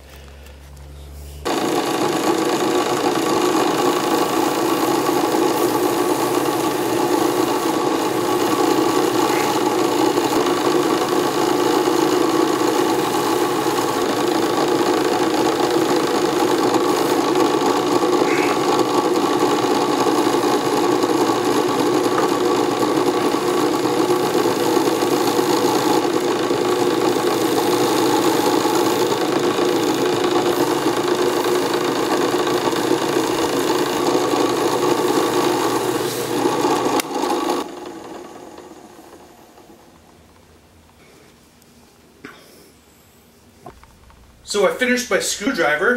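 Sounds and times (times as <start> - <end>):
drill press running: 1.4 - 40.4.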